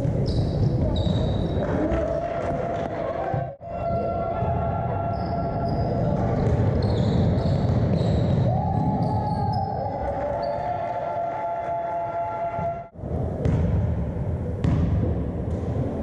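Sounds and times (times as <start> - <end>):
sneakers squeaking: 0.0 - 2.0, 5.1 - 10.7
players' voices: 0.0 - 12.9
ball bouncing on hardwood court: 6.3 - 9.1, 13.4 - 13.8, 14.6 - 15.7.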